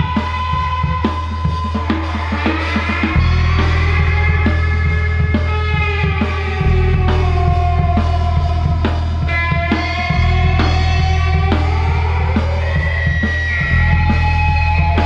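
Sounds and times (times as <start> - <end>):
bending lead guitar notes: 0.0 - 15.0
heavy bass line: 0.0 - 15.0
rock band playing live: 0.0 - 15.0.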